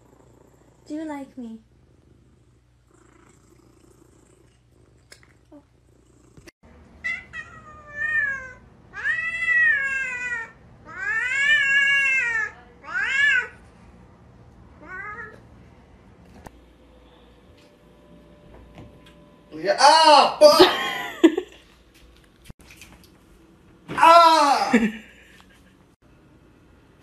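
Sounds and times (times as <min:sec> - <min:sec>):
cat meowing: 0:07.0 - 0:13.6, 0:14.8 - 0:15.4.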